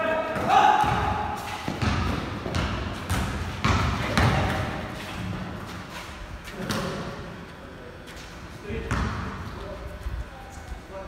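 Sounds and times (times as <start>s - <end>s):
basketball bouncing on concrete: 0.4s - 5.6s, 8.8s - 9.5s.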